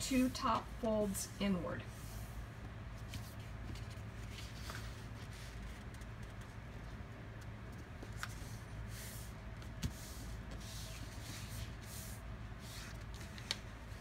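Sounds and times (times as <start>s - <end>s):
steady low hum: 0.0s - 14.0s
paper rustling and sliding: 3.0s - 6.6s, 7.7s - 14.0s.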